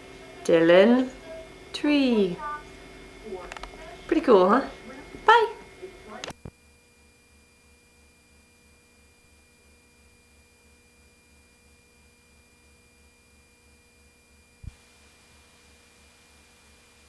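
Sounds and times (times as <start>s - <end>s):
faint electrical hum: 0.0s - 17.0s
tape hiss: 14.6s - 17.0s.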